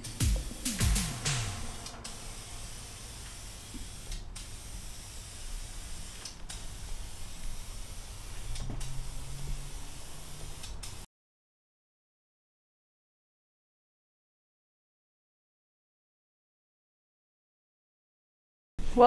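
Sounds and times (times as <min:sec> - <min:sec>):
low steady hum: 0:00.0 - 0:08.4
spray paint can hissing: 0:00.0 - 0:11.1.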